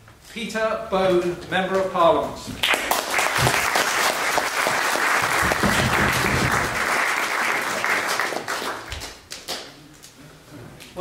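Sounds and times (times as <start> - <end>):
audience applauding: 2.6 - 9.7.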